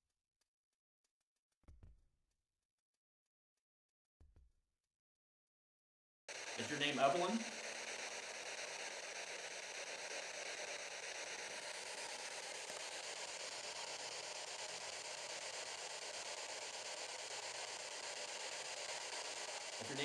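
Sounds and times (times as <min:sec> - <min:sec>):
hissing radio static: 0:06.3 - 0:11.5, 0:17.2 - 0:20.0.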